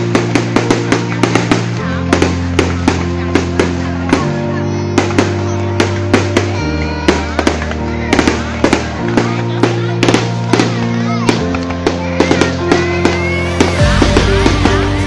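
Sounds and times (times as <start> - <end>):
fireworks banging: 0.0 - 15.0
music with held bass chord: 6.4 - 15.0.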